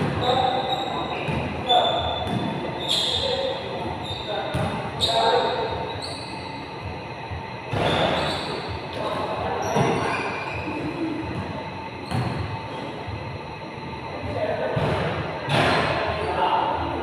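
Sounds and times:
sneakers squeaking on court: 0.0s - 6.7s, 7.7s - 10.8s, 12.0s - 13.0s
basketball bouncing: 2.2s - 2.6s, 4.5s - 4.8s, 12.1s - 12.5s.

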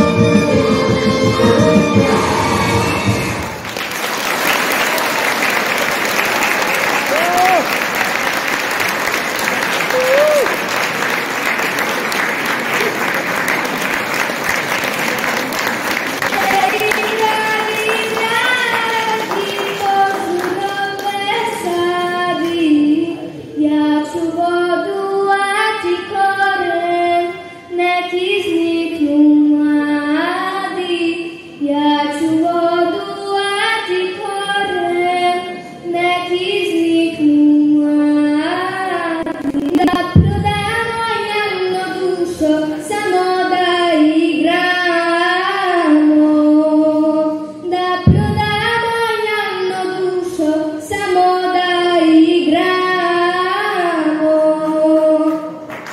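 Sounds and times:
girl singing into microphone: 16.3s - 55.7s
low thumps: 39.2s - 41.0s, 48.0s - 48.9s.

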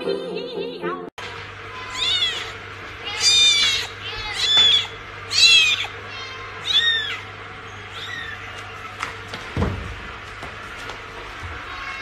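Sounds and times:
kitten mewing: 1.8s - 7.3s.

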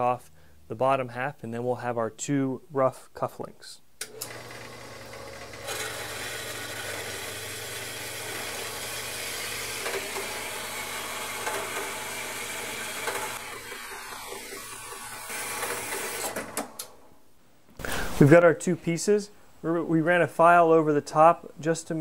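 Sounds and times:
bandsaw cutting steel: 4.1s - 16.4s.

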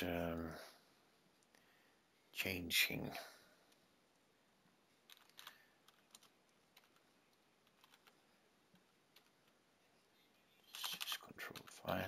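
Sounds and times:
typing on computer keyboard: 5.1s - 8.2s, 8.8s - 9.6s.

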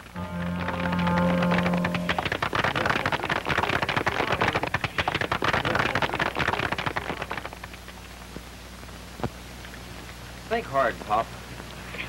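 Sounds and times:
crowd applauding: 0.0s - 7.6s
faint hiss: 0.0s - 12.0s.

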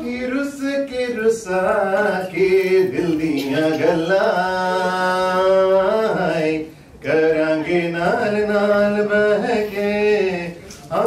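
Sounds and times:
man chanting: 0.0s - 11.0s.

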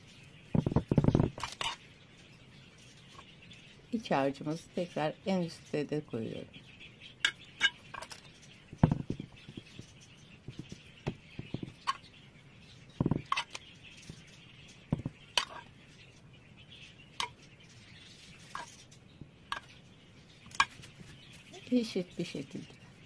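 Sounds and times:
metal spoon clinking and scraping: 1.1s - 1.8s, 15.4s - 15.7s
soft knocks: 8.7s - 9.9s, 14.9s - 15.2s.

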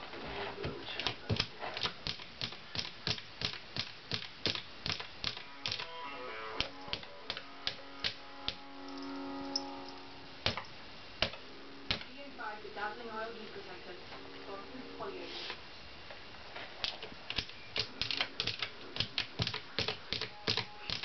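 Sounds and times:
musical tones: 5.4s - 15.5s.

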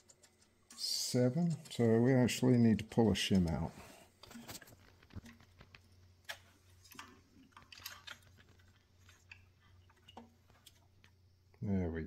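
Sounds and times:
faint metal clicks and taps: 0.0s - 3.6s.

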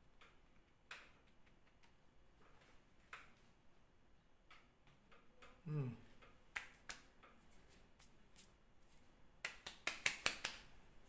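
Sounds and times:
hands patting together: 6.5s - 10.8s.

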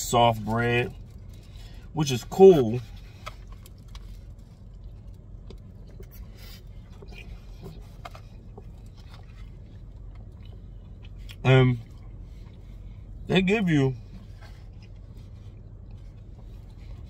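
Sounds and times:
low hum inside a car: 0.0s - 17.0s
person chewing food: 2.8s - 13.3s, 14.0s - 17.0s.

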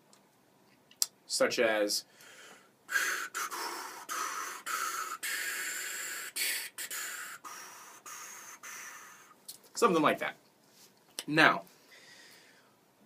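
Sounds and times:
person blowing whooshing notes through lips: 2.9s - 9.4s.

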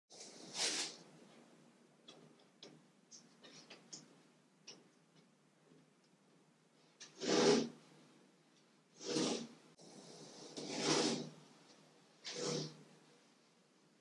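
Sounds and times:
pad rubbing wooden hull: 7.2s - 7.7s.

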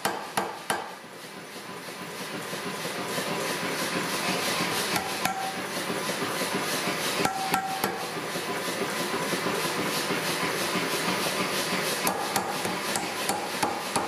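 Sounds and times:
power hammer striking steel: 0.0s - 1.0s, 4.8s - 5.7s, 7.2s - 8.1s, 12.0s - 14.0s.

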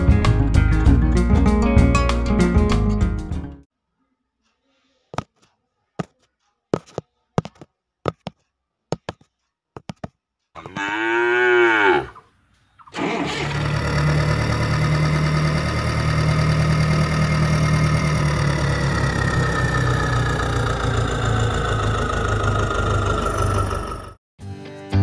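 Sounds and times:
cow mooing: 10.6s - 12.3s
tractor engine running: 12.9s - 24.2s.

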